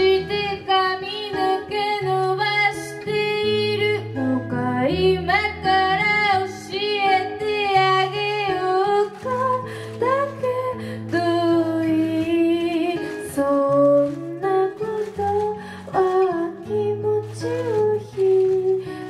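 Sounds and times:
person singing: 0.0 - 19.0
plucked guitar: 0.0 - 19.0.

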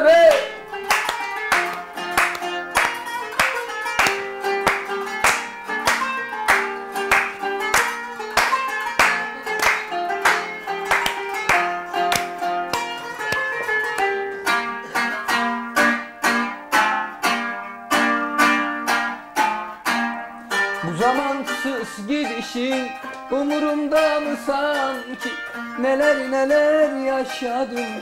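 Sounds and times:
hand clapping: 0.3 - 15.5
plucked zither playing: 0.6 - 28.0.

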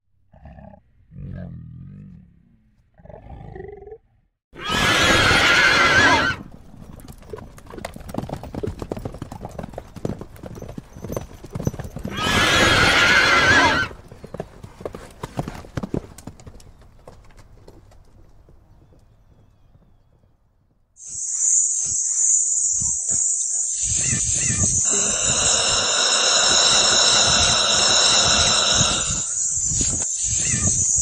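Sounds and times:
horse neighing: 4.6 - 6.5, 12.1 - 14.0
galloping hoofbeats: 6.4 - 12.9, 13.9 - 20.3.

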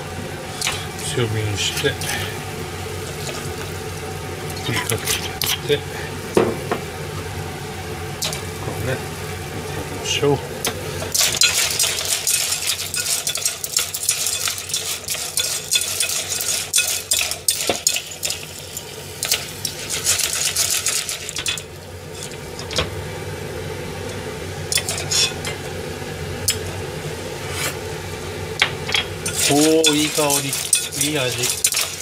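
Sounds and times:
sizzling: 0.0 - 32.0
clams clattering in metal pot: 11.1 - 22.9, 24.7 - 25.6, 28.8 - 32.0.

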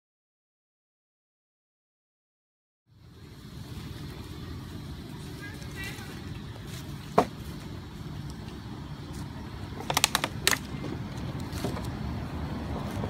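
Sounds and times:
steady low rumble: 2.9 - 13.0
plastic bottle clicking and crackling: 9.8 - 10.7.

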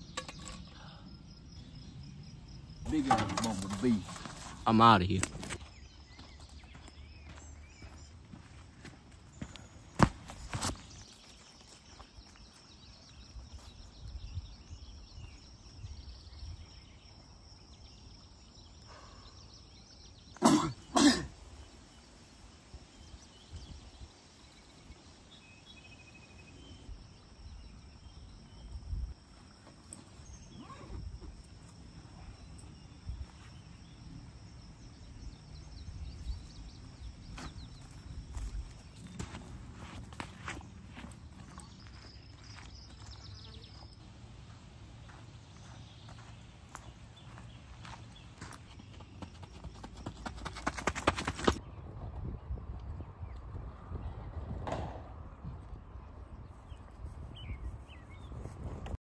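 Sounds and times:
footsteps through grass: 3.7 - 12.8, 37.2 - 43.8, 44.4 - 48.6
short coughs: 20.4 - 21.4.

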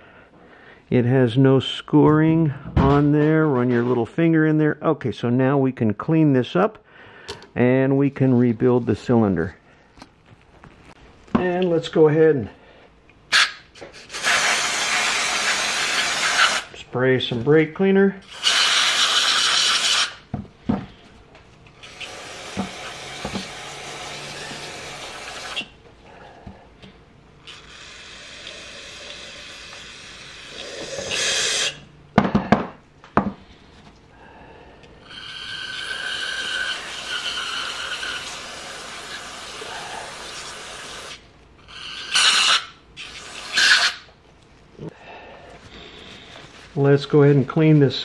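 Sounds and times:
aerosol spray hissing: 18.3 - 20.2, 21.8 - 25.7, 27.5 - 31.8, 35.5 - 41.2.

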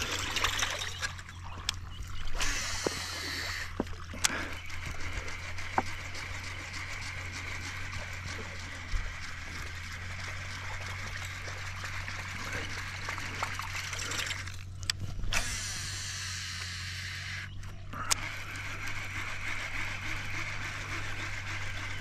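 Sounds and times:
water trickling and splashing: 0.0 - 5.0, 9.8 - 14.7
low steady hum: 0.0 - 22.0
sharp clicks: 16.6 - 19.4.

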